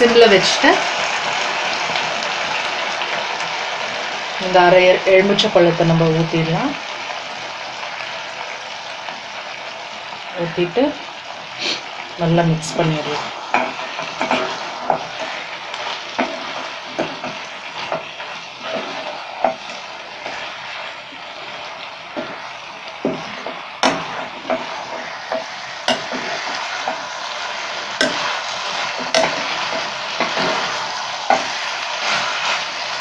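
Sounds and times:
food sizzling in a pan: 0.0s - 33.0s
spatula knocking against pan: 25.3s - 26.2s, 28.0s - 28.2s, 29.0s - 30.5s.

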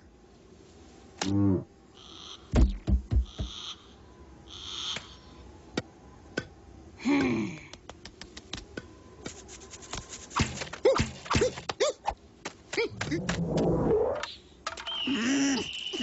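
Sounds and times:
sharp clicks and taps: 7.7s - 8.8s
downward gliding tone: 12.9s - 14.3s
short rising-and-falling tones: 12.9s - 14.4s.

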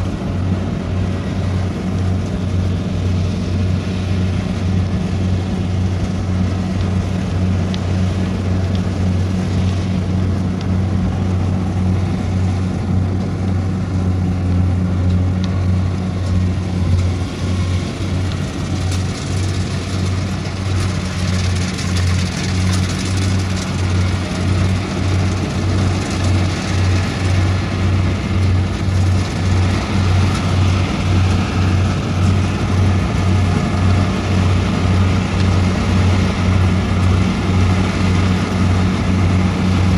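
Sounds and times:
combine harvester diesel engine: 0.0s - 39.9s.

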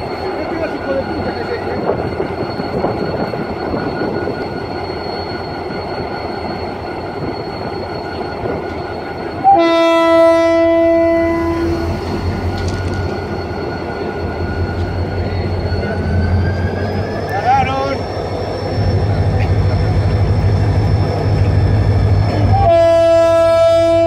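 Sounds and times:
diesel locomotive engine rumbling: 0.0s - 24.0s
locomotive horn blast: 9.4s - 12.0s, 22.3s - 24.0s.

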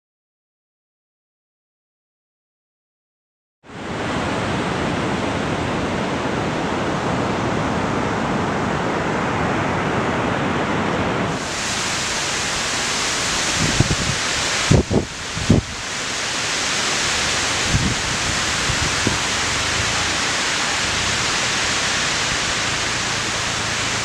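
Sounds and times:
wind: 3.6s - 24.0s
ocean surf: 3.7s - 24.0s
wind bumps on microphone: 13.0s - 16.0s, 16.6s - 24.0s.

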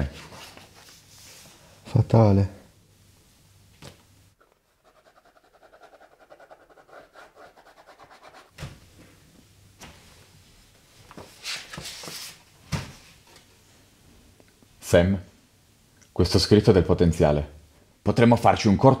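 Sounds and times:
paper rustling: 11.0s - 12.5s.

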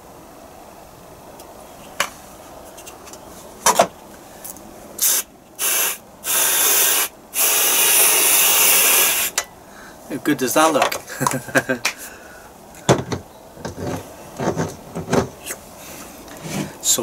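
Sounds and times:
aerosol whipped cream spraying: 5.0s - 9.3s.

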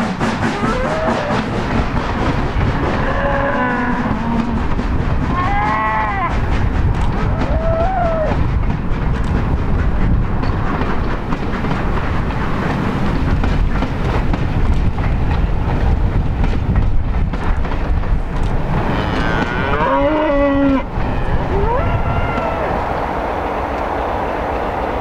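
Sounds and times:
wheels clicking over rail joints: 0.0s - 23.0s
train coaches rumbling past: 0.0s - 25.0s
cow mooing: 18.9s - 20.8s.

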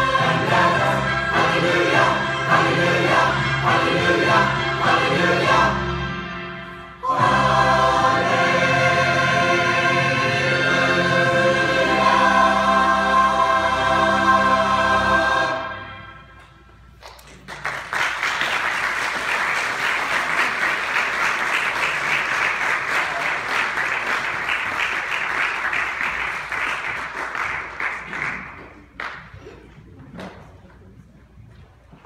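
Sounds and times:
choir holding a chord: 0.0s - 16.4s
congregation applauding: 17.0s - 29.4s.

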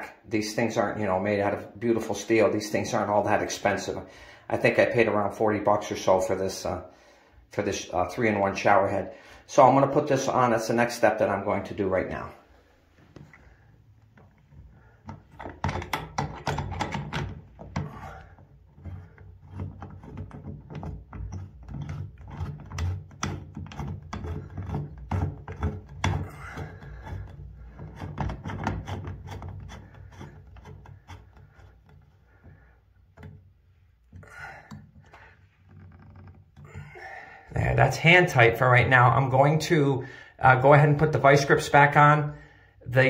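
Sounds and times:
fitting rubbing and scraping: 9.7s - 39.8s.

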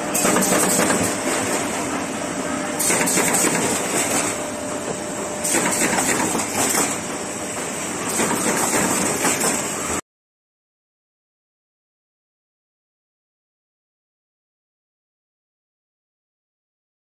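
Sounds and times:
machine hum: 0.0s - 10.0s
machine hiss: 0.1s - 1.5s, 2.8s - 4.5s, 5.4s - 10.0s
machine clattering: 0.1s - 2.0s, 2.8s - 4.4s, 5.4s - 9.8s.

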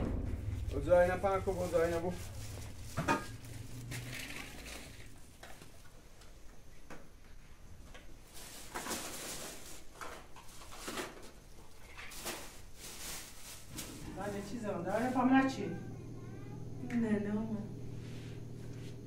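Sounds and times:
plastic bag rustling: 0.1s - 5.9s, 8.3s - 15.7s.

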